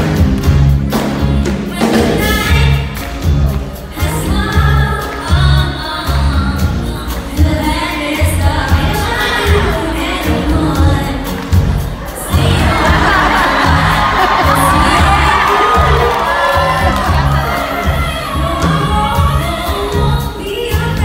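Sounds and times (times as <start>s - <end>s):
pop music with heavy bass: 0.0s - 21.0s
singers singing in harmony: 7.4s - 21.0s.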